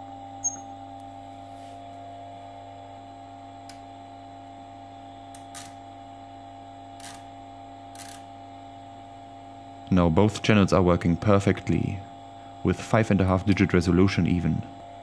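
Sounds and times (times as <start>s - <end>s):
loud cooling fan hum: 0.0s - 15.0s.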